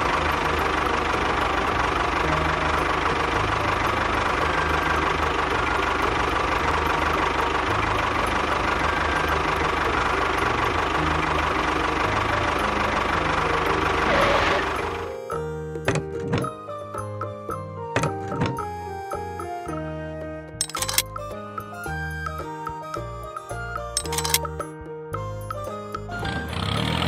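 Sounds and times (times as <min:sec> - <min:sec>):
tractor engine chugging: 0:00.0 - 0:15.1.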